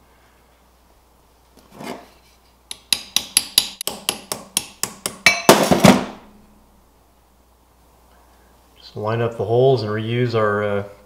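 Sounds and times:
hammer tapping on metal: 2.7s - 5.8s.

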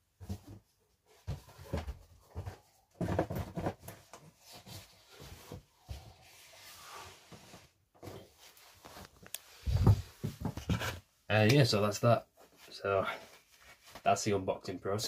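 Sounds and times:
knocks and rustles on cardboard box: 0.1s - 6.1s, 9.7s - 11.0s.

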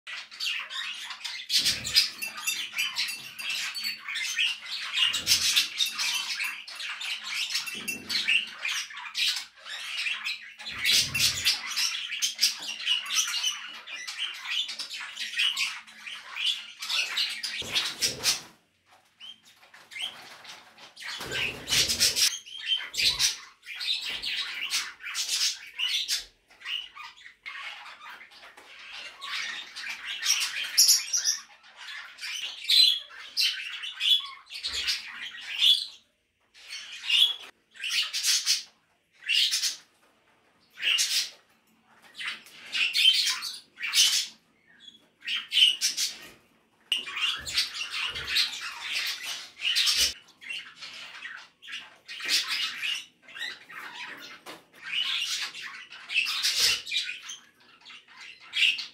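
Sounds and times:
bird chirps: 0.1s - 18.5s, 40.6s - 58.9s.

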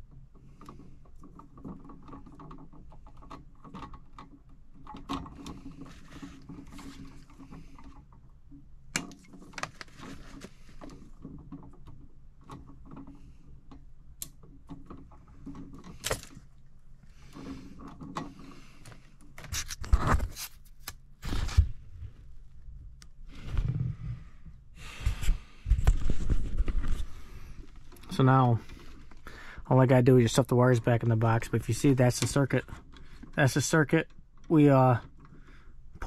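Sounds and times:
hands handling wire: 0.0s - 24.0s.

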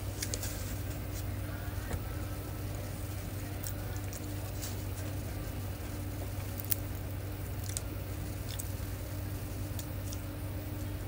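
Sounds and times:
steady low hum: 0.0s - 11.0s
person chewing pizza: 2.7s - 11.0s.

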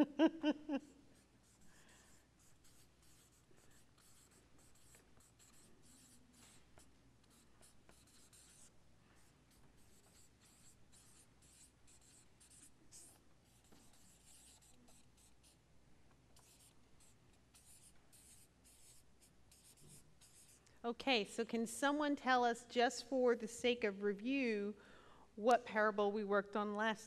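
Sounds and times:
marker scratching on paper: 1.1s - 15.6s, 16.4s - 20.6s.

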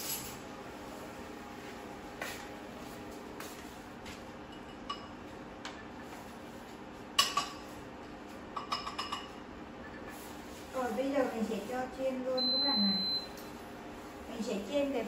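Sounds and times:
utensils clinking against dishes: 0.0s - 0.4s, 8.6s - 9.4s.

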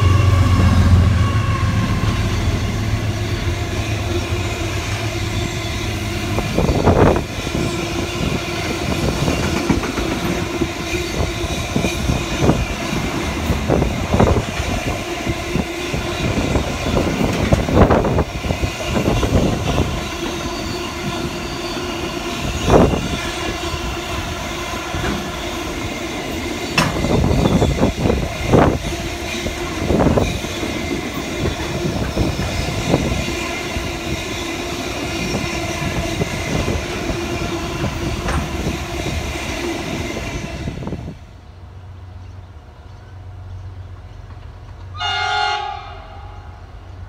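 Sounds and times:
train horn: 0.0s - 8.9s, 18.8s - 25.8s, 44.9s - 47.0s
train rumbling by: 0.0s - 47.0s
wheels clacking over rail joints: 3.6s - 39.0s.

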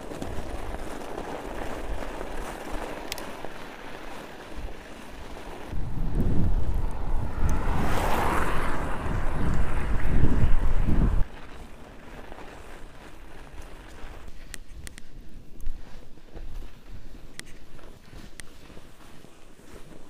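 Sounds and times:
wind buffeting microphone: 4.5s - 11.7s.

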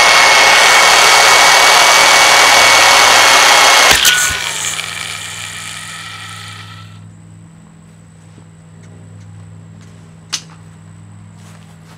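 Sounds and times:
vacuum motor winding down: 0.0s - 7.0s.

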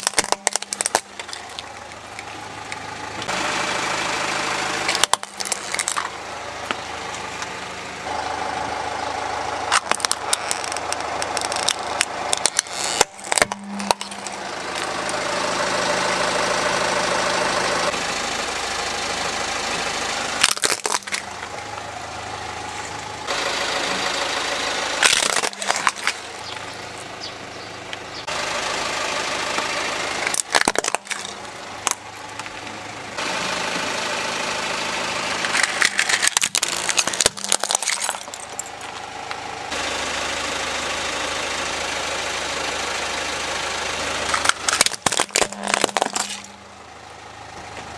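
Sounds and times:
plastic toys cracking: 0.0s - 2.8s, 4.9s - 6.2s, 9.7s - 15.2s, 20.4s - 21.3s, 25.0s - 27.1s, 30.2s - 32.6s, 35.4s - 39.0s, 44.2s - 46.6s
car engine idling: 0.0s - 47.9s.

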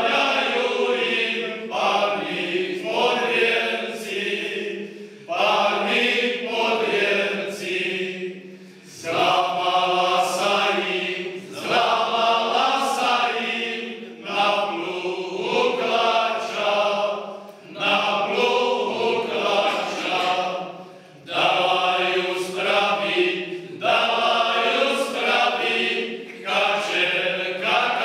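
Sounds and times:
men's choir singing: 0.0s - 28.0s.

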